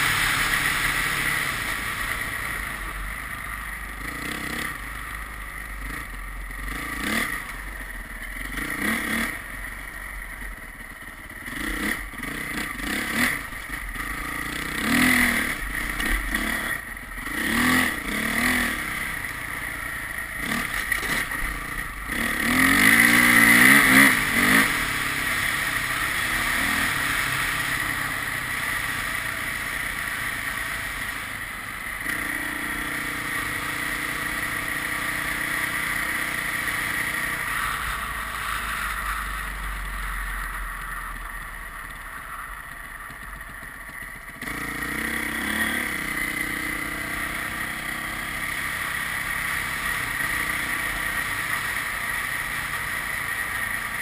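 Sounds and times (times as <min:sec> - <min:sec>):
vehicle engine revving: 0:20.3 - 0:31.0.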